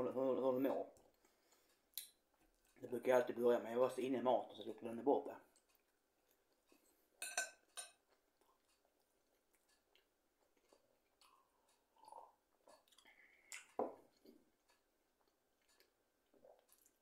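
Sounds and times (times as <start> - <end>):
faint chewing: 0.7 - 3.0, 5.4 - 17.0
fork clinking against dish: 7.2 - 8.0.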